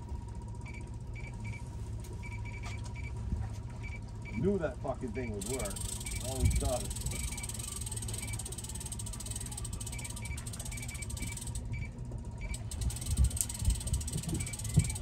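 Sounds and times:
boat motor drone: 0.0 - 15.0
fishing reel clicker ratcheting: 5.4 - 11.8, 12.4 - 15.0.

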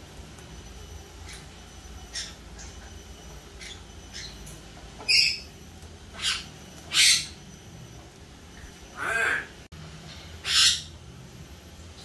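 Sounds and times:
cockatoo squawking: 9.0 - 9.6.

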